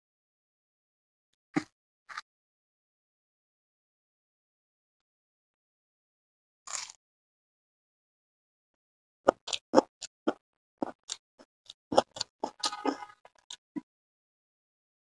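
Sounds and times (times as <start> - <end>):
wet chewing and smacking: 9.3 - 13.6.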